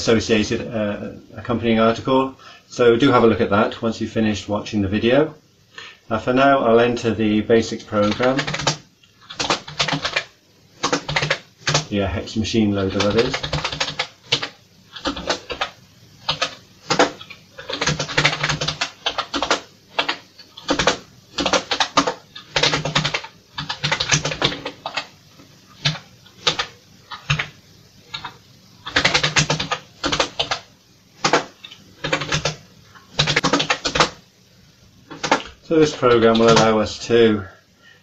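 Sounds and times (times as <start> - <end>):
typing on computer keyboard: 8.0 - 11.9, 12.9 - 25.1, 25.8 - 34.2, 35.1 - 36.7.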